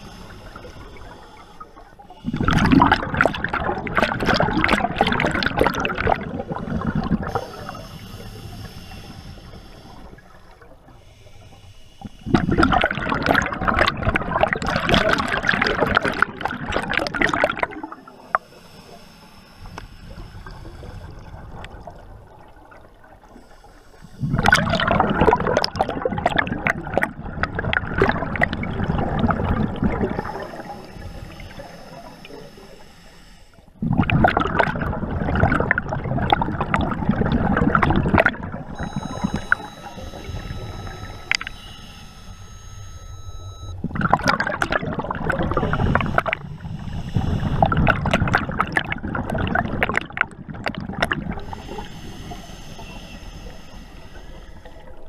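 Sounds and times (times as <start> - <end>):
inhaling through regulator: 0.0 - 3.0, 6.2 - 14.0, 17.3 - 21.5, 23.3 - 25.3, 29.8 - 33.8, 45.2 - 48.6, 51.2 - 55.0
exhaled bubbles rushing: 2.2 - 18.9, 19.7 - 23.4, 24.2 - 32.7, 33.8 - 41.5, 43.8 - 52.4.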